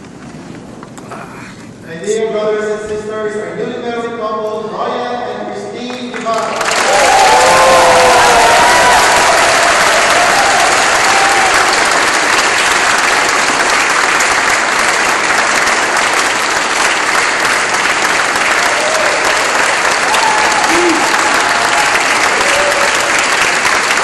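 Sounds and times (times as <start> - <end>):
congregation applauding: 5.9 - 24.0.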